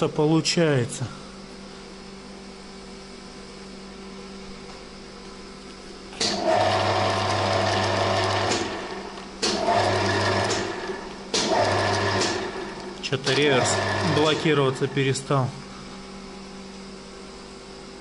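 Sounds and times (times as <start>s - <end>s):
lathe whirring: 6.2s - 15.8s.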